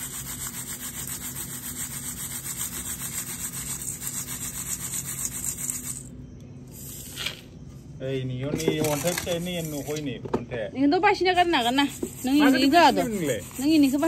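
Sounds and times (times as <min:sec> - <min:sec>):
quick rubbing strokes: 0:00.0 - 0:06.1, 0:11.4 - 0:14.0.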